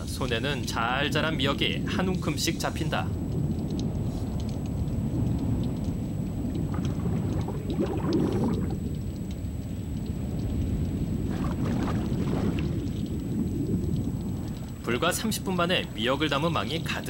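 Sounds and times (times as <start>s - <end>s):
small splashes and crackles: 0.0s - 17.0s
sea water surging: 1.1s - 17.0s.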